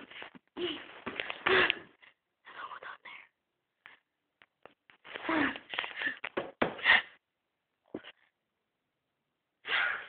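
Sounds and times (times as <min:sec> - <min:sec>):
person whispering: 0:02.4 - 0:03.4.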